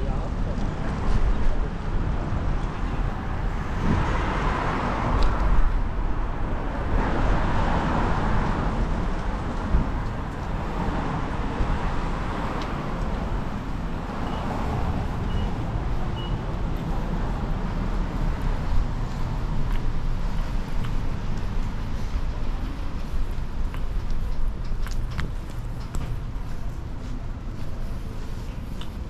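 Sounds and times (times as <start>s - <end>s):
low traffic rumble: 0.0s - 29.0s
short high beeps: 16.2s - 16.4s.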